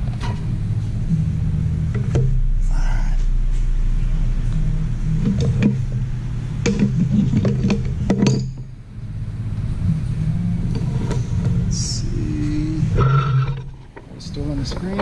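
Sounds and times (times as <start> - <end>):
steady low hum: 0.0 - 15.0
metal tools clinking on workbench: 8.1 - 8.6.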